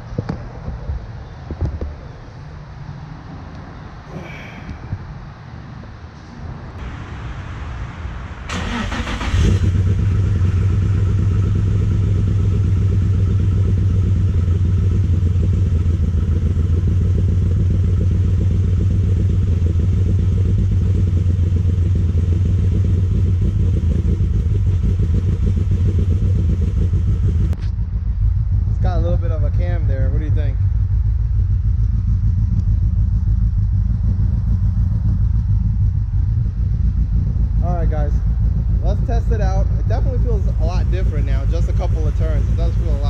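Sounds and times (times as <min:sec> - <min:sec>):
car engine cold start and idle: 0:06.8 - 0:43.0.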